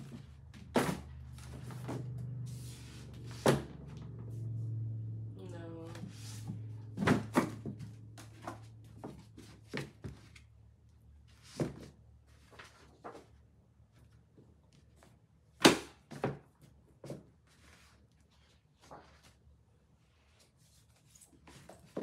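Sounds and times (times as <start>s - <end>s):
books knocking on shelves: 0.0s - 2.2s, 3.4s - 3.8s, 6.0s - 10.3s, 15.6s - 16.4s.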